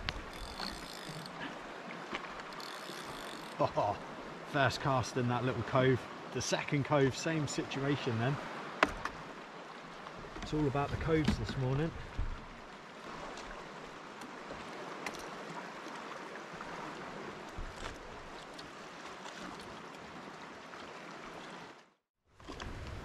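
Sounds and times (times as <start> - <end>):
calm sea water lapping: 0.0 - 23.0.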